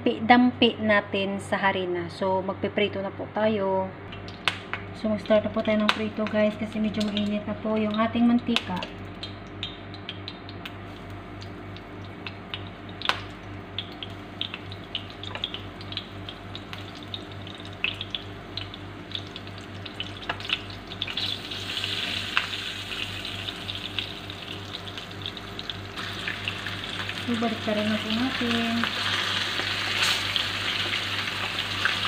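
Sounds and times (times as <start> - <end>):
kitchen exhaust fan humming: 0.0 - 32.0
oil sizzling with fish frying: 4.1 - 32.0
oil popping: 7.0 - 22.6.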